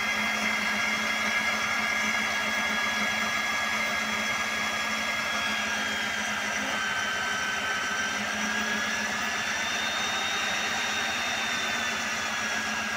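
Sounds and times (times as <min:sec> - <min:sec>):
core drill cutting concrete: 0:00.0 - 0:12.9.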